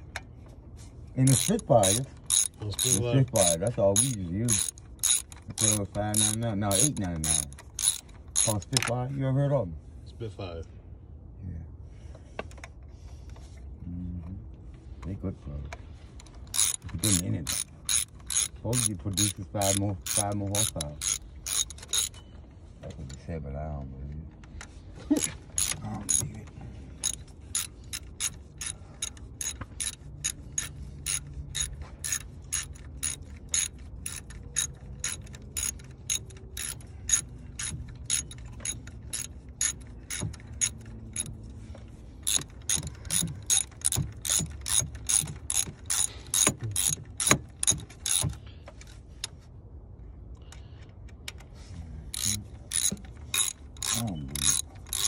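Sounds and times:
socket ratchet clicking: 1.2 - 8.9, 16.2 - 22.2, 25.2 - 26.4, 27.0 - 41.4, 42.2 - 49.0, 52.1 - 55.0.

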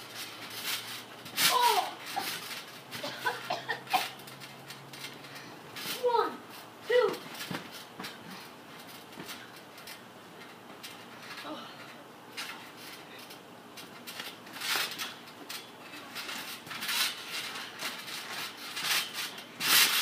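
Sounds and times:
thuds on trampoline mat: 7.1 - 9.4.

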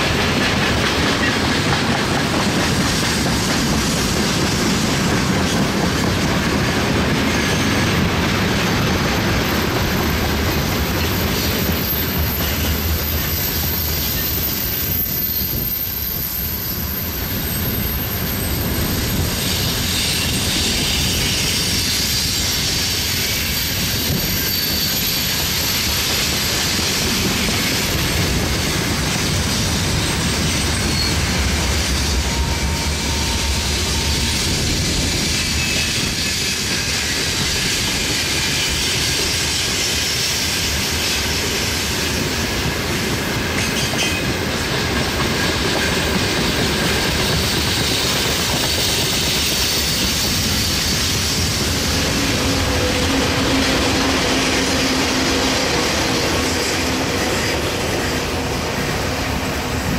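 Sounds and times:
freight train rolling: 0.0 - 59.9
wheels on rail joints: 0.0 - 59.9
wheel squeal: 9.4 - 28.2, 29.9 - 41.4, 45.3 - 58.2.

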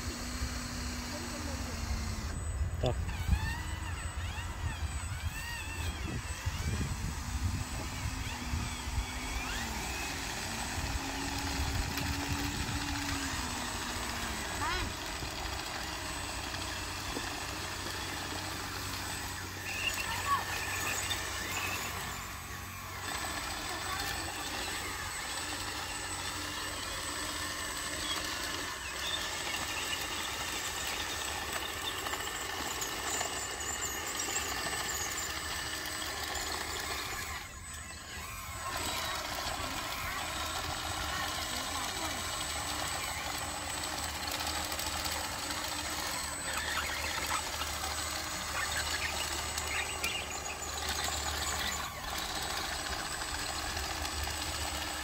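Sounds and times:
toy bulldozer motor hum: 0.0 - 55.0
bulldozer pushing dirt: 38.5 - 52.8.

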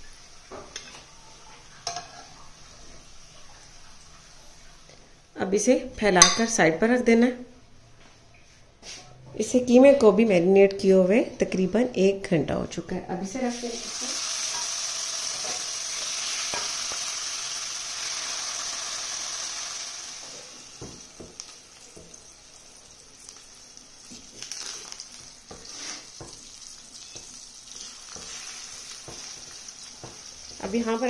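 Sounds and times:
meat sizzling in hot oil: 13.4 - 31.0.

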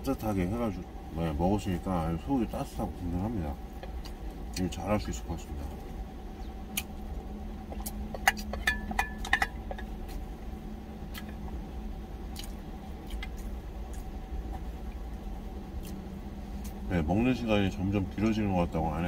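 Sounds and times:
low engine hum: 0.0 - 19.0
eating and mouth sounds: 6.6 - 8.7, 11.0 - 11.6, 12.2 - 16.8.

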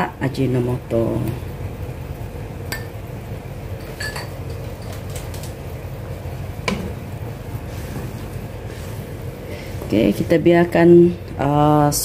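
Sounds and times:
utensil clinking: 3.8 - 5.5.

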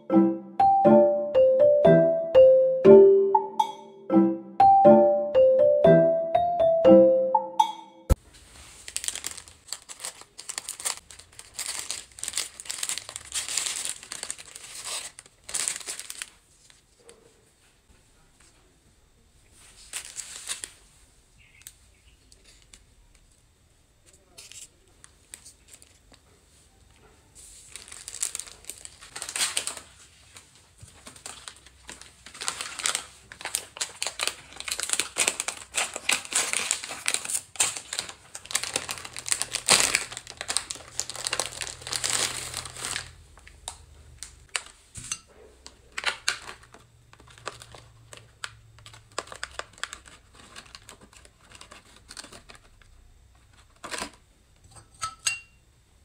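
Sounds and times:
plastic wrapper crinkling: 8.2 - 17.1, 19.6 - 22.8, 24.3 - 26.2, 27.4 - 44.8, 45.6 - 52.9, 53.5 - 54.2
cookies clicking on a plastic tray: 45.8 - 52.8.

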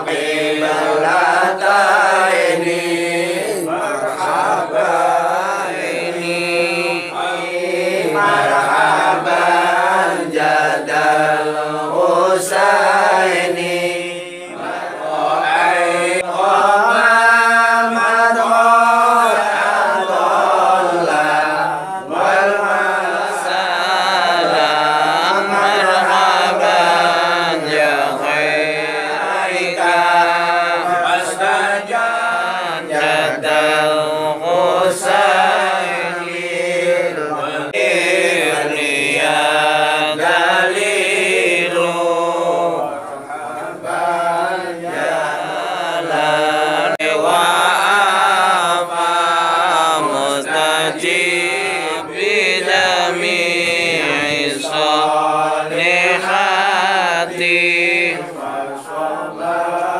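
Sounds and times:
group chanting devotional song: 0.0 - 59.9.

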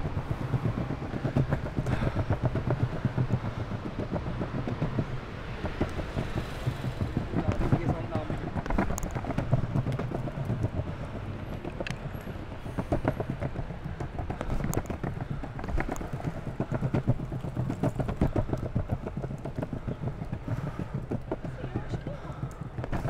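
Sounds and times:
skateboard wheels rolling on stone: 0.0 - 23.0
wheels clacking over joints: 0.0 - 23.0.

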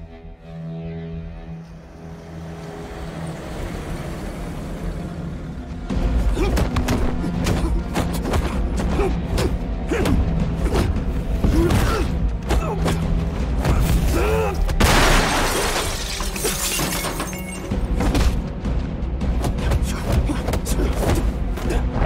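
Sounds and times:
fighters grunting: 6.2 - 14.8, 19.6 - 22.0
glass shattering crash: 14.8 - 17.8.

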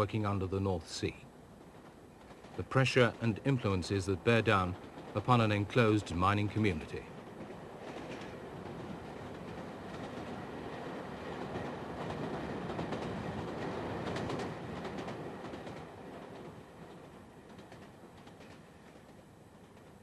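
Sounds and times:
train wheels rumbling on track: 0.0 - 20.0
train wheel clicks: 6.7 - 20.0.

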